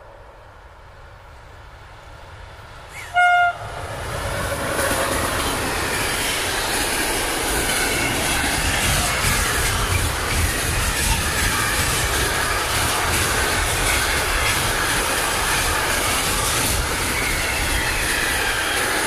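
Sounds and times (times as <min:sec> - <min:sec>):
train wheels on rails: 0:00.0 - 0:19.0
locomotive horn blast: 0:03.0 - 0:03.8.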